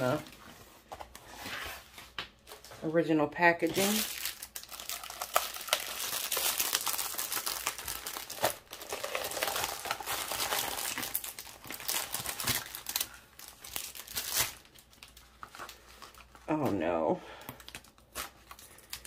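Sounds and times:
plastic film and paper crinkling: 3.6s - 16.8s, 17.4s - 19.0s.

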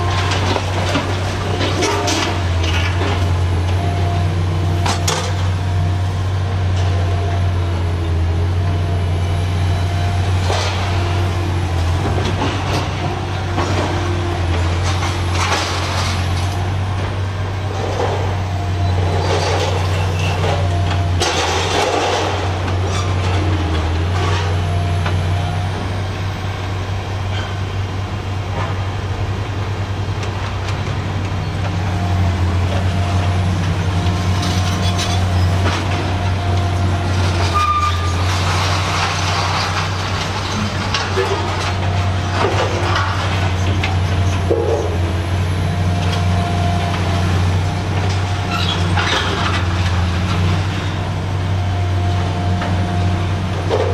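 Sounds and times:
metal crunching and clanking: 0.0s - 3.8s, 4.7s - 5.7s, 10.2s - 26.0s, 32.6s - 45.3s, 46.0s - 51.2s, 53.5s - 53.9s
diesel engine drone: 0.0s - 53.9s.

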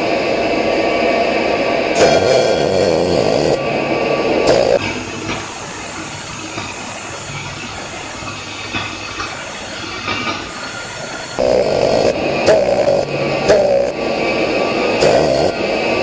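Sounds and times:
loud buzz: 1.9s - 5.1s, 10.4s - 16.0s
welding arc crackling hiss: 2.0s - 16.0s.

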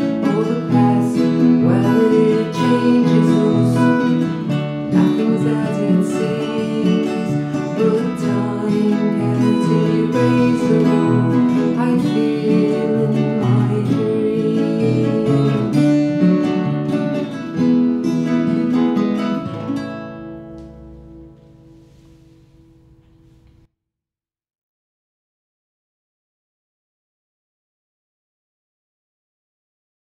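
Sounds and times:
acoustic guitars playing folk song: 0.0s - 23.6s.

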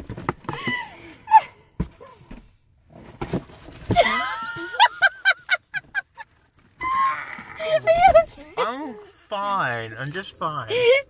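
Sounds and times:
person squealing: 6.8s - 8.2s.

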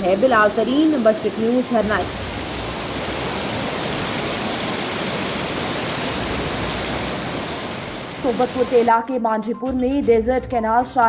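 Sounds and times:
floodwater rushing: 0.0s - 8.9s.

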